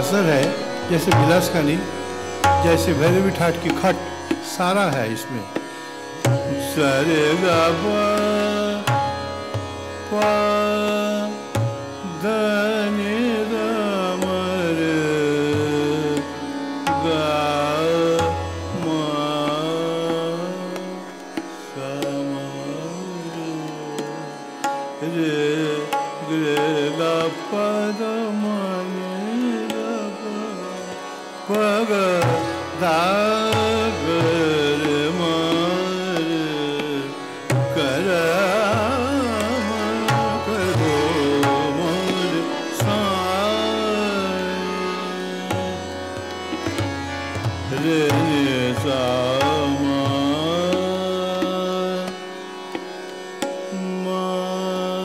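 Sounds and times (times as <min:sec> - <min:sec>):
tabla drumming: 0:00.0 - 0:10.4, 0:32.1 - 0:43.6, 0:46.6 - 0:51.6
harmonium: 0:00.0 - 0:55.0
man singing classical vocal: 0:00.0 - 0:55.0
tanpura drone: 0:00.0 - 0:55.0.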